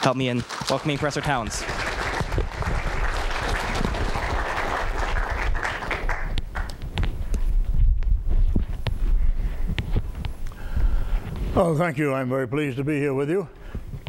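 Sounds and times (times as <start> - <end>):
audience applauding: 0.0 - 6.9
low thumps: 6.3 - 11.6.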